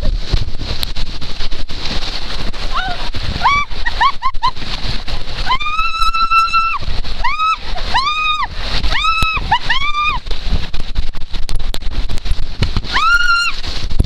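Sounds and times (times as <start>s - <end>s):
water rushing down waterslide: 0.0s - 14.0s
person whooping: 2.7s - 4.3s, 5.4s - 10.2s, 12.9s - 13.6s.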